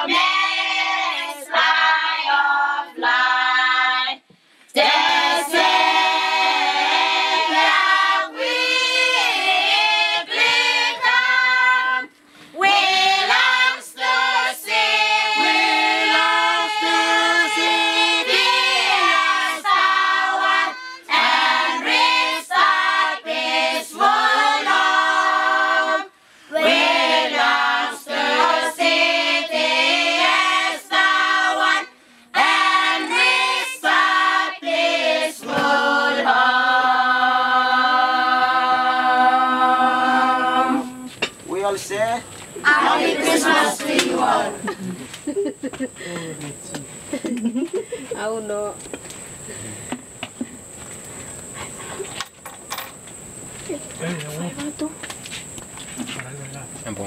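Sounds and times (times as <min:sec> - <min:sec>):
choir of young voices singing: 0:00.0 - 0:41.6, 0:42.6 - 0:44.8.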